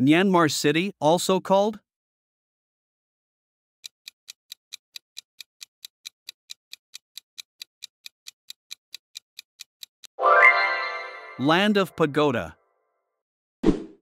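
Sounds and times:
clock-like timer ticks: 0:03.8 - 0:10.2.

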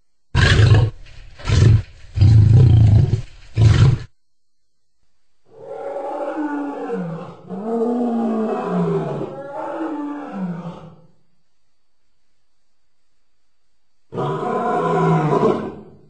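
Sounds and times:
lion roaring: 0:00.4 - 0:04.1, 0:05.5 - 0:11.0, 0:14.1 - 0:16.0.

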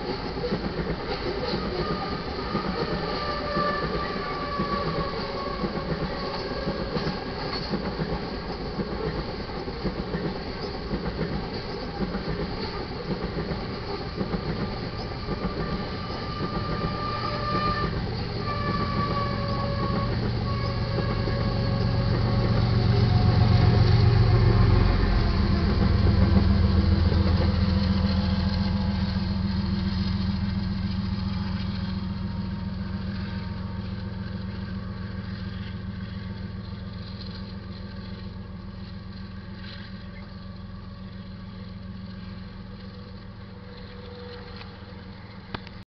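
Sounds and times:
diesel locomotive engine passing: 0:00.0 - 0:45.8.

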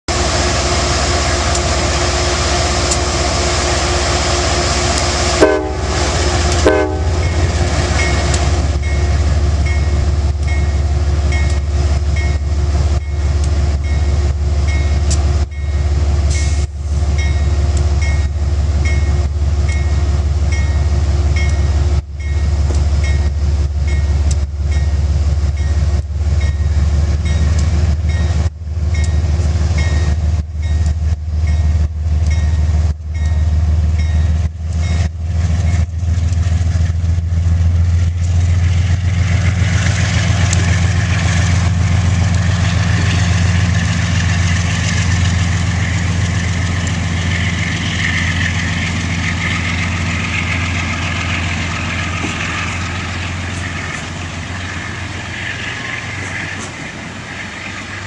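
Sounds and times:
diesel locomotive engine drone: 0:00.0 - 0:58.0
train wheels clicking over rails: 0:01.2 - 0:58.0
train horn blasts: 0:04.3 - 0:08.0.

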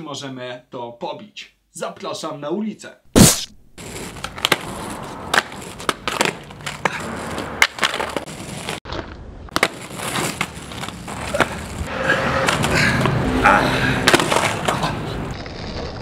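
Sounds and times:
skateboard clacking on asphalt: 0:03.8 - 0:11.8, 0:14.0 - 0:16.0
skateboard wheels rolling: 0:03.8 - 0:13.2, 0:14.0 - 0:16.0.

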